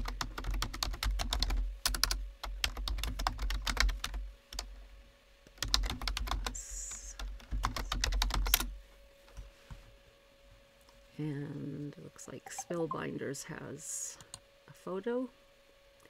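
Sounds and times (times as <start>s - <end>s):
keyboard typing: 0.0s - 4.7s, 5.6s - 6.5s, 7.2s - 8.7s.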